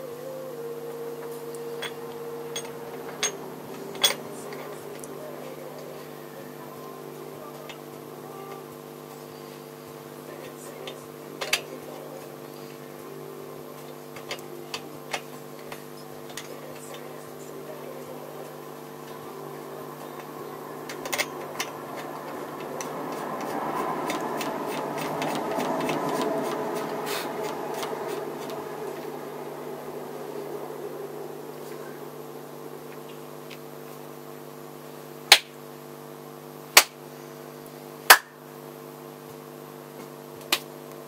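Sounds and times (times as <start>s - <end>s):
steady background hum: 0.0s - 41.0s.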